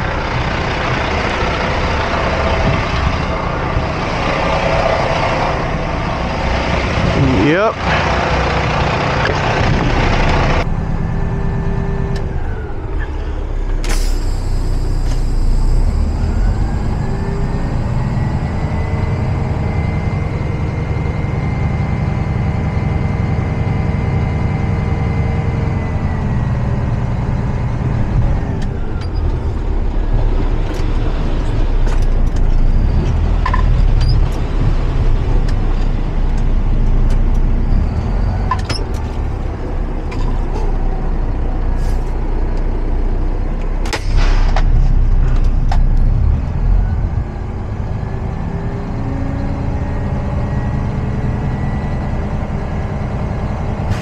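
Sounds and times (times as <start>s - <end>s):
diesel truck engine running: 0.0s - 54.0s
sharp clunk: 43.8s - 45.0s.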